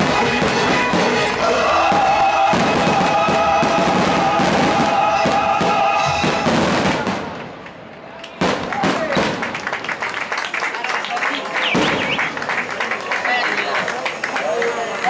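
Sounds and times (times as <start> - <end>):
loud music with held notes: 0.0 - 6.8
fireworks bangs and crackles: 0.0 - 10.0, 11.4 - 14.4.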